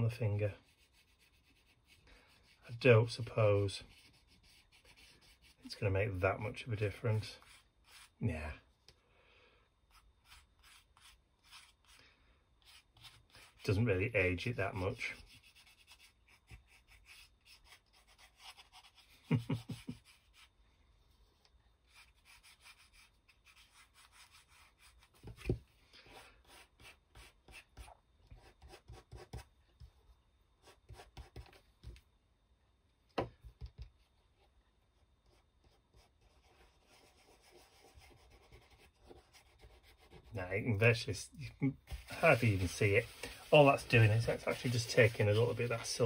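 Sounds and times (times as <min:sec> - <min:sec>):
fingertip rubbing and scratching: 0:14.9 - 0:20.5, 0:21.9 - 0:25.4, 0:41.9 - 0:46.0.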